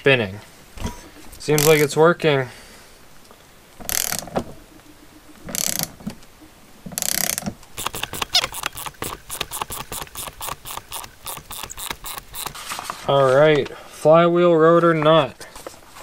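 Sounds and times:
socket ratchet clicking: 1.6s - 1.9s, 3.9s - 4.3s, 7.0s - 12.6s.

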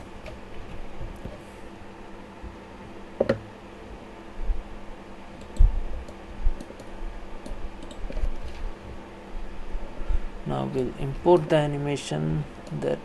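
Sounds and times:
keyboard and mouse clicks: 3.2s - 3.4s, 5.4s - 8.6s.

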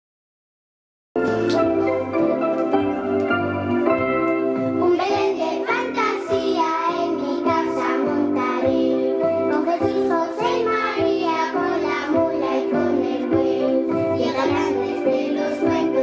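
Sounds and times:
sustained instrumental chords: 1.2s - 9.6s
children singing in unison: 4.8s - 16.0s.

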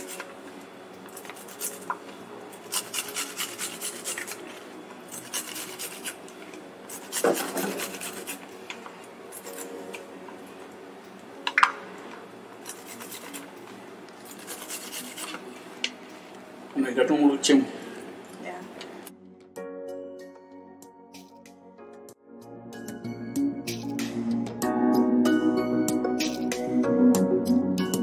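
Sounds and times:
garlic rasping on grater: 2.6s - 4.5s, 5.1s - 6.2s, 6.9s - 8.5s, 12.6s - 13.6s, 14.3s - 15.4s.

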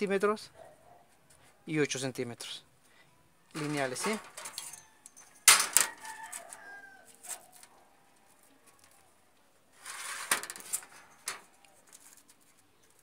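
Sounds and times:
steel ruler clattering on metal: 3.6s - 6.2s, 9.9s - 11.4s
ruler scraping on metal: 9.8s - 11.2s.

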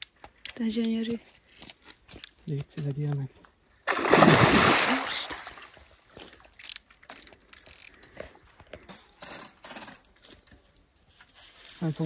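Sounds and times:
fish splashing in water: 3.9s - 5.7s
fishing reel ticking: 6.6s - 8.0s.

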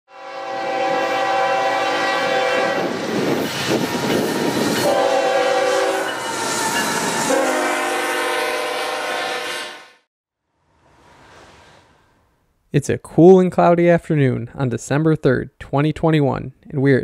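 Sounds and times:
locomotive air horn blasts: 0.1s - 3.0s, 4.6s - 10.0s.

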